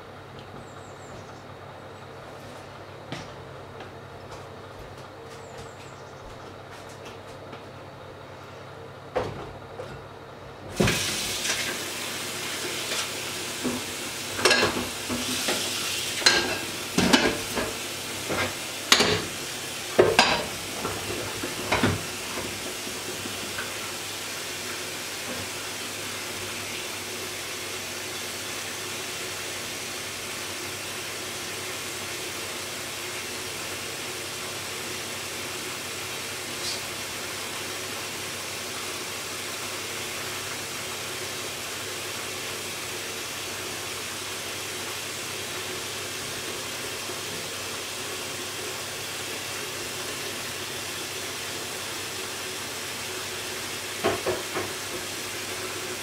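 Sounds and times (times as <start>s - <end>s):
food sizzling in a pan: 10.8s - 56.0s.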